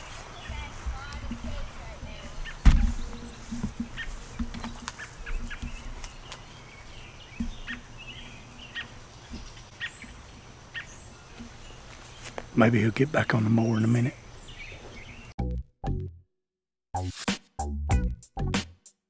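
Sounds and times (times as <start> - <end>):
faint outdoor background: 0.0 - 16.3
sharp thump: 2.6 - 3.8.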